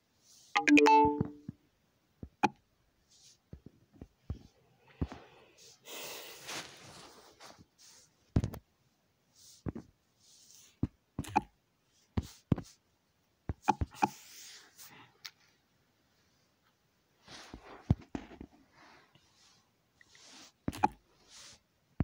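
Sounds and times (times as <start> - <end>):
soft hissy puffs: 4.8 - 8.3, 9.3 - 10.9, 14.1 - 16.6, 17.2 - 21.7.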